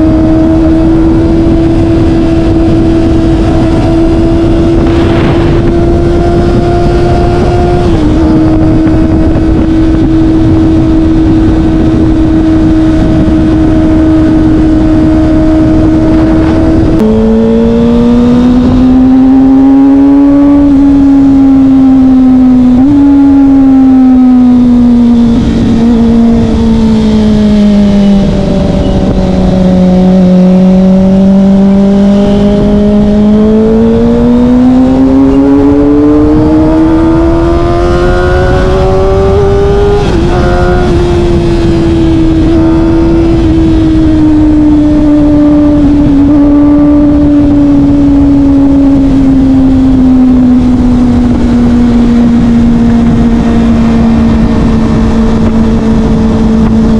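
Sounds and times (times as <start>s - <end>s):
motorcycle engine revving: 0.0s - 56.9s.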